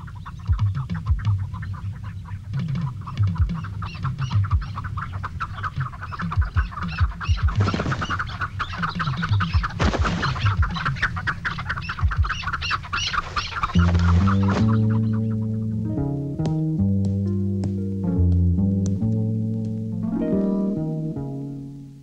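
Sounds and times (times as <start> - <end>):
partridges chattering clucks: 0.0 - 15.6
low sustained music notes: 0.0 - 22.0.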